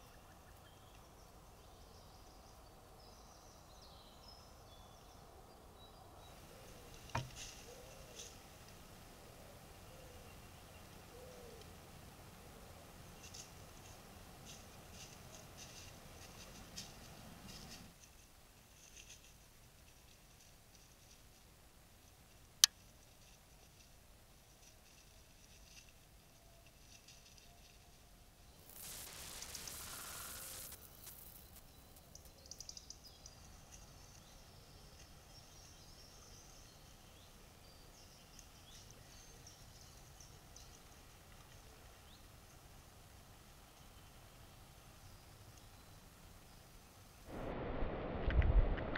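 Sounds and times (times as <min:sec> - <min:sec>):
faint distant birdsong: 0:00.0 - 0:47.6
microphone hiss: 0:05.0 - 0:25.8, 0:26.8 - 0:48.9
rustles in dry leaves: 0:06.3 - 0:32.1.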